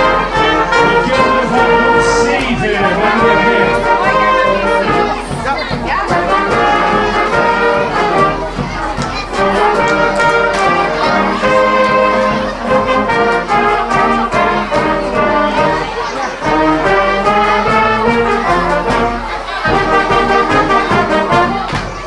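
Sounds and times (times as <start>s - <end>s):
brass and saxophone band playing: 0.0s - 22.0s.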